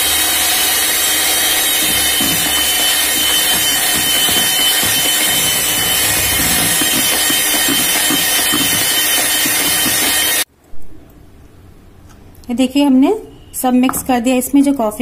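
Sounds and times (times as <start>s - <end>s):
electric hand mixer whining: 0.0s - 10.5s.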